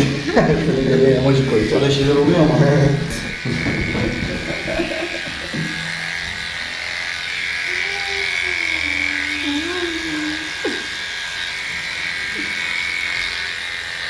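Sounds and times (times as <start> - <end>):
electric clipper buzzing: 0.0 - 14.0
cat crying: 7.6 - 10.9
cat moaning: 7.6 - 11.0.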